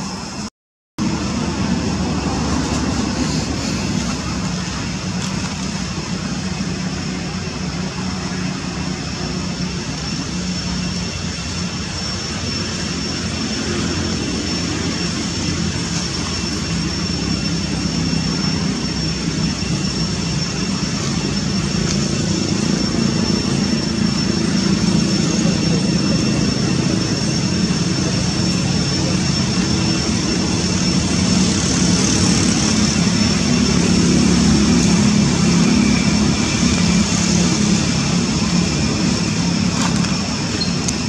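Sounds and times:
low engine drone: 0.0 - 41.0.

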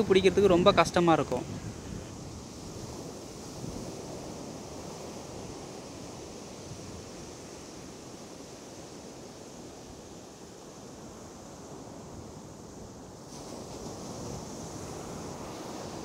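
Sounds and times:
sea surf breaking: 0.0 - 12.3, 13.2 - 16.0
wind rumbling on microphone: 0.0 - 16.0.

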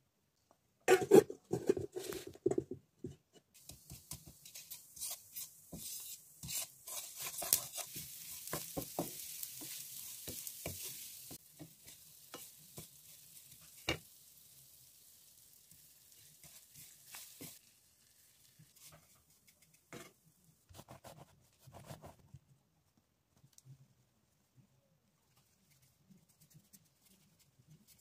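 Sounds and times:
wooden spatula scraping in pan: 0.9 - 2.6, 3.6 - 14.0, 16.1 - 17.6
light sizzling hiss: 3.5 - 20.3.

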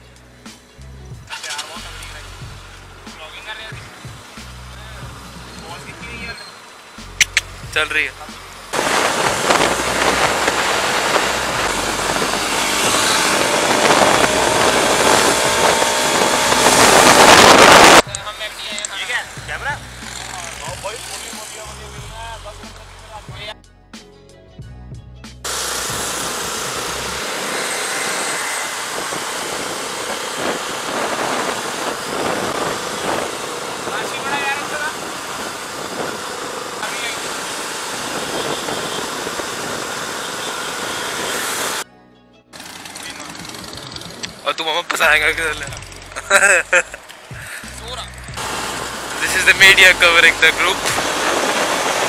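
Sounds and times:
motorcycle engine running: 0.0 - 23.5, 25.4 - 41.8, 42.6 - 52.0
wind rushing over microphone: 8.8 - 18.2, 25.9 - 41.8, 47.3 - 52.0.

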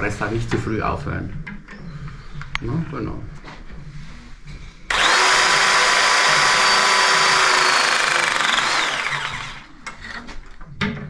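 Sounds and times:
pipe press tool motor whine: 4.9 - 9.7.

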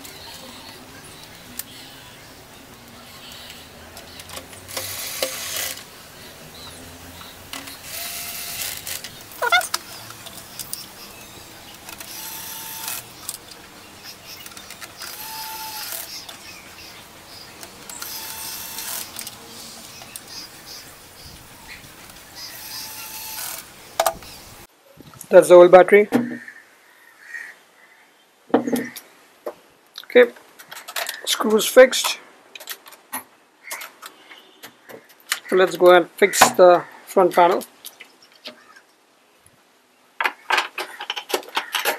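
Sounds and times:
cordless screwdriver whirring: 4.2 - 5.9, 7.6 - 10.8, 11.8 - 13.4, 14.6 - 16.3, 17.9 - 19.4, 22.5 - 23.7.

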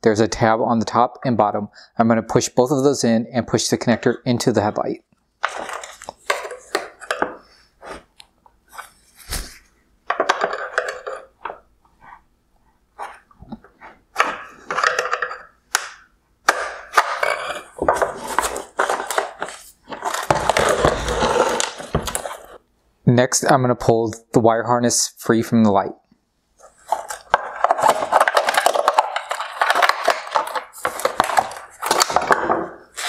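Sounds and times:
plastic housing knocking and rattling: 10.1 - 11.6, 14.2 - 21.1, 26.8 - 32.8.

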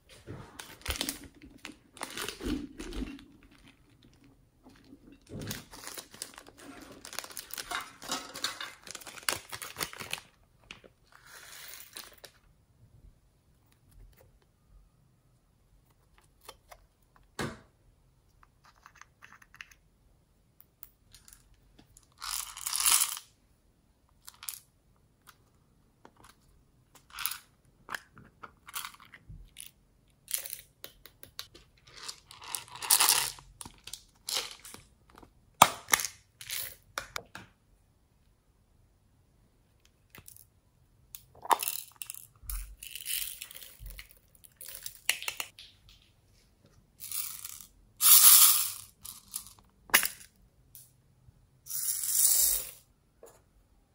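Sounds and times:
beads rattling and pouring: 11.2 - 12.2, 22.1 - 23.2, 31.9 - 33.4, 41.5 - 45.2, 47.0 - 49.6, 51.7 - 52.8.

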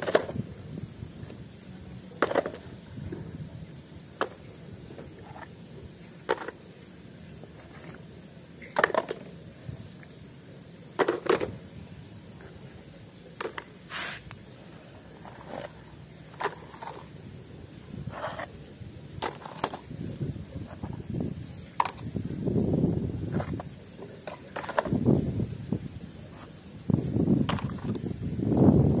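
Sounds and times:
toy vehicles clunking on tray: 8.6 - 9.3, 10.9 - 11.6.

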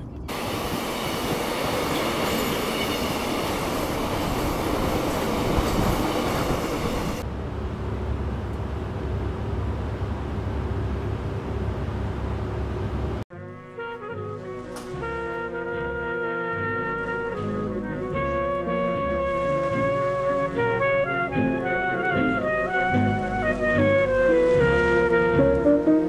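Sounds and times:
bus rumble inside cabin: 0.0 - 0.6, 6.5 - 13.3
freight train passing: 0.0 - 13.2.

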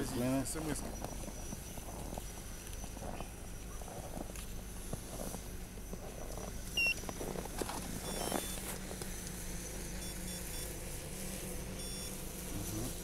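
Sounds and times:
short electronic beeps: 6.8 - 7.0, 8.0 - 8.6, 10.0 - 10.7, 11.8 - 12.2.

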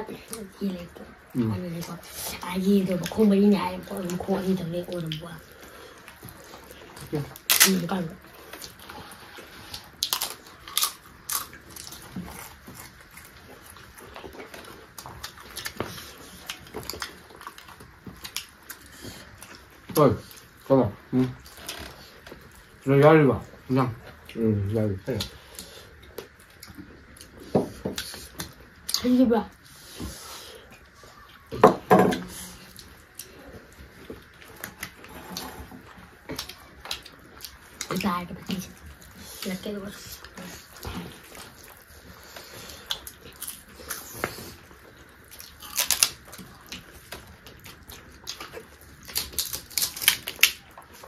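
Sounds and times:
soft chewing: 0.0 - 51.0
crunching food: 4.9 - 22.8, 40.2 - 51.0
chewing and food picking clicks: 40.2 - 51.0.

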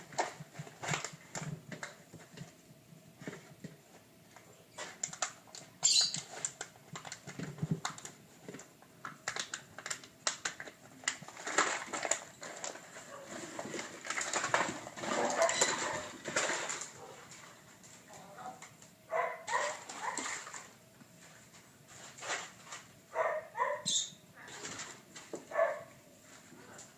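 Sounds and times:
puppies scuffling: 3.2 - 23.9
puppy claws and toys clicking: 4.8 - 12.9.

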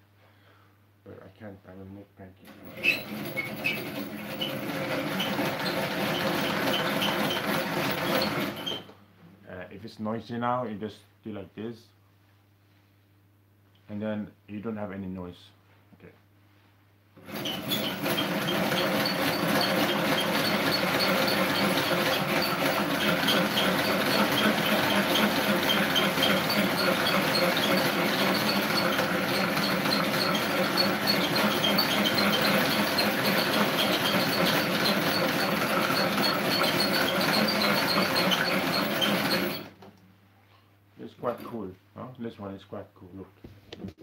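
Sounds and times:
mixer whirring: 2.5 - 8.9, 17.2 - 39.8.

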